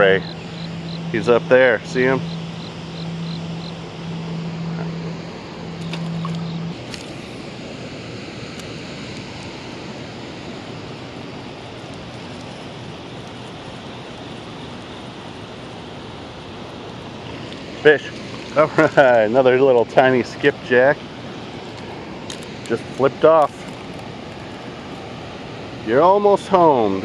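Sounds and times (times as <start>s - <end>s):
low steady hum: 0.0s - 27.0s
turbulent water rushing: 0.0s - 27.0s.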